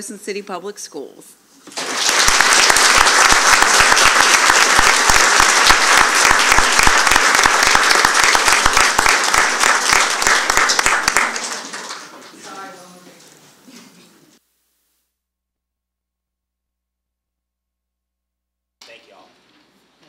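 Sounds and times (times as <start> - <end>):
audience applauding: 1.7 - 12.6.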